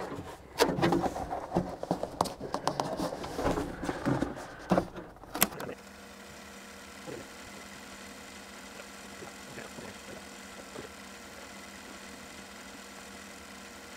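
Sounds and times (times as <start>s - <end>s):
knocks taps and rustles: 0.0s - 5.8s
steady low hum: 0.0s - 13.9s.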